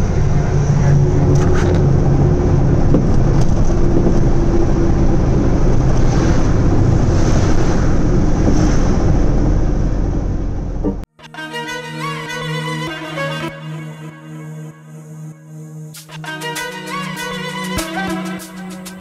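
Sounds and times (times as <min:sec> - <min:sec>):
truck diesel engine cruising: 0:00.0 - 0:11.1
tyre and road noise: 0:00.0 - 0:11.1.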